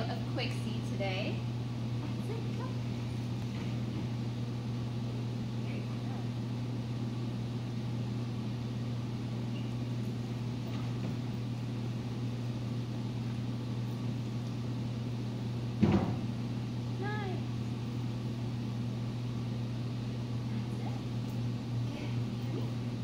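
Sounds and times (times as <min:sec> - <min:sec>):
steady low hum: 0:00.0 - 0:23.0
loud thump: 0:15.8 - 0:16.3.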